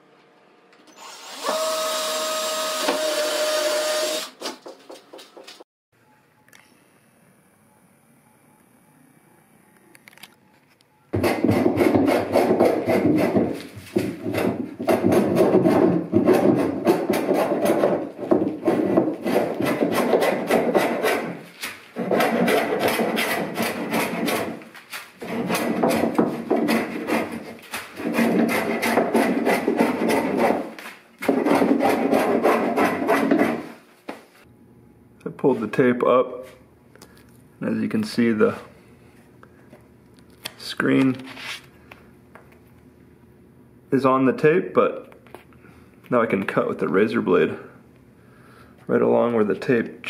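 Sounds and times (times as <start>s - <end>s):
tool rasping on wood: 11.2s - 33.8s.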